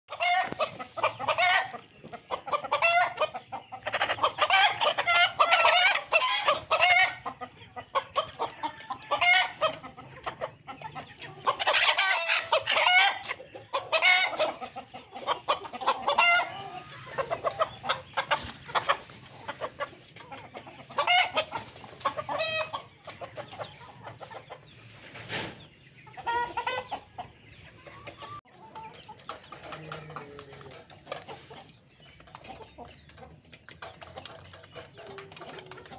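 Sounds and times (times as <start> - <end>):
chickens clucking and cackling: 0.1 - 35.9.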